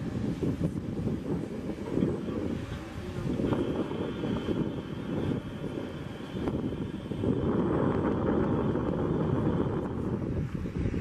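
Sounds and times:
high engine whine: 0:00.0 - 0:11.0
jet engines rumbling: 0:00.0 - 0:11.0.

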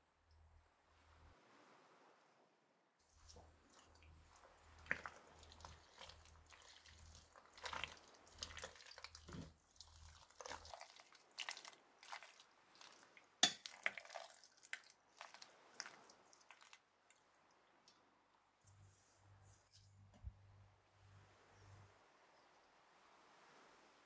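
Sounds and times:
pasta squishing in thick sauce: 0:03.0 - 0:18.0.

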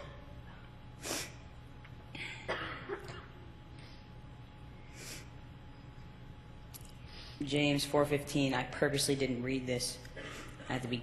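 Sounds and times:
faint steady hum: 0:00.0 - 0:11.0
man clearing throat: 0:02.2 - 0:03.5, 0:10.2 - 0:10.7
man breathing sharply: 0:04.8 - 0:05.4, 0:07.0 - 0:07.4.

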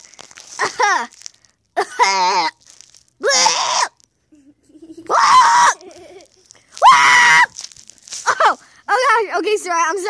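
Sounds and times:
child screaming: 0:01.9 - 0:02.6, 0:03.2 - 0:04.0, 0:05.1 - 0:06.0, 0:06.8 - 0:07.6.

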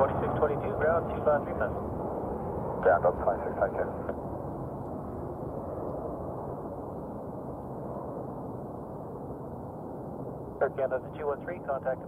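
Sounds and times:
jet airliner engines roaring: 0:00.0 - 0:12.0.

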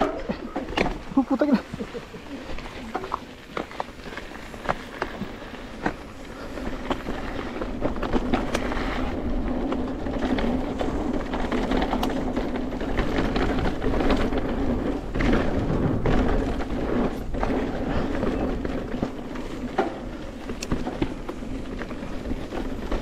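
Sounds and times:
bike knocking and rattling: 0:00.0 - 0:23.0
tyres rumbling on trail: 0:00.0 - 0:23.0.

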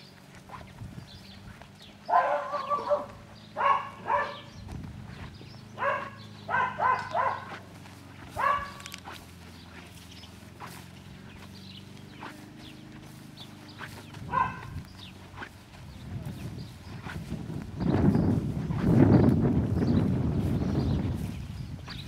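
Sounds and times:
dog barking: 0:02.1 - 0:04.5, 0:05.8 - 0:07.6, 0:08.3 - 0:09.2, 0:14.3 - 0:14.8.

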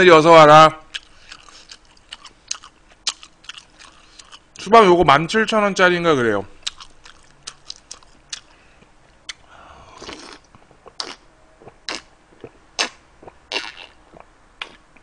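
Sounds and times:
wet chewing and slurping: 0:00.9 - 0:04.4, 0:10.0 - 0:14.8.

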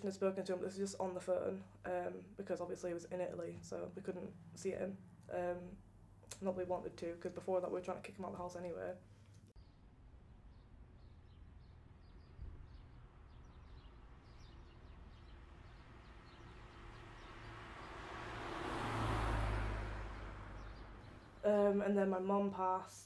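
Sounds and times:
small birds chirping: 0:00.0 - 0:23.0
car passing: 0:02.9 - 0:07.1, 0:10.1 - 0:21.8.

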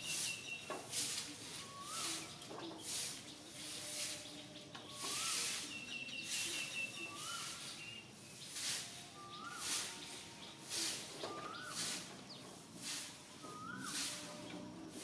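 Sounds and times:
high hissing: 0:04.9 - 0:05.7, 0:08.4 - 0:15.0
rising whistled bird note: 0:13.5 - 0:14.3.

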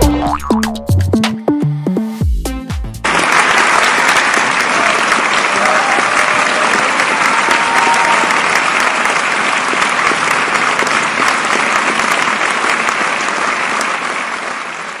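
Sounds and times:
crowd applauding: 0:03.0 - 0:15.0.

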